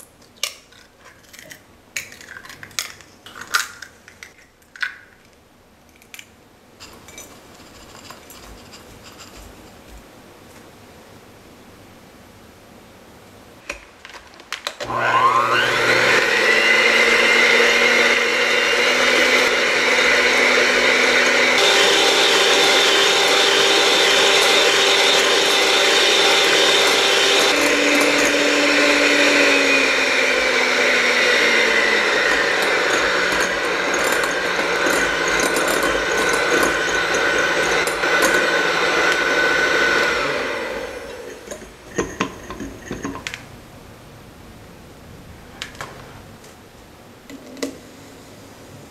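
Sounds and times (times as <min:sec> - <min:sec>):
electric hand mixer whisking: 0:14.8 - 0:43.0.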